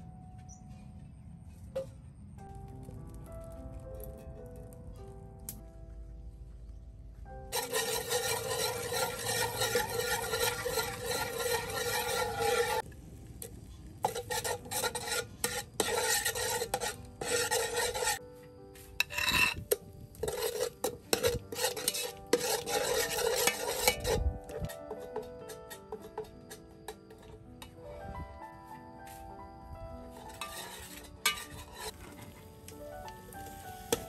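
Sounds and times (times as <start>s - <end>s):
metal ladle scraping pot: 7.5s - 12.9s, 14.0s - 18.2s, 19.0s - 27.7s, 30.1s - 32.5s.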